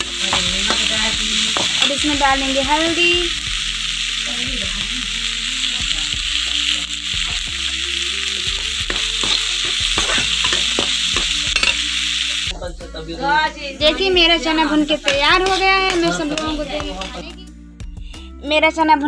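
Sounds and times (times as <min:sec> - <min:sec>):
chickpeas sizzling in a pan: 0:00.0 - 0:12.5, 0:13.2 - 0:17.3
steel spatula scraping a pan: 0:08.8 - 0:12.0.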